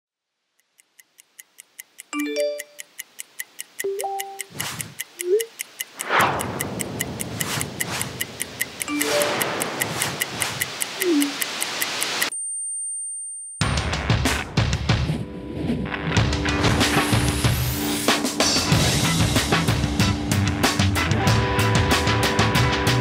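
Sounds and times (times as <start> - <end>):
stopwatch ticking: 0.6 - 12.3
phone notification blips: 3.8 - 4.5, 8.9 - 10.4, 11.0 - 11.4
whooshes: 6.0 - 12.2
dense music bed: 13.6 - 23.0.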